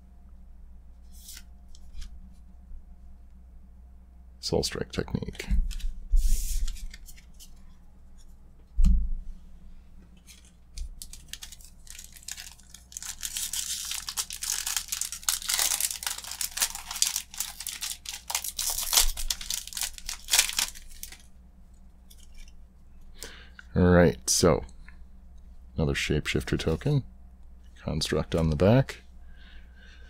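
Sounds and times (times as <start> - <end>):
thump: 8.8 - 9.2
foil wrapper crinkling and tearing: 10.3 - 21.3.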